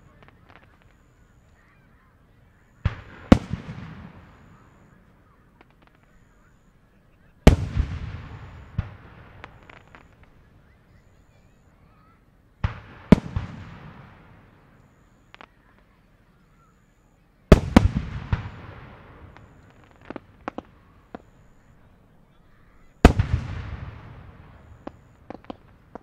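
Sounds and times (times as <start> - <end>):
small firework pops: 0.0 - 1.7, 2.8 - 6.2, 7.5 - 10.4, 12.6 - 16.0, 17.5 - 21.6, 23.0 - 26.0.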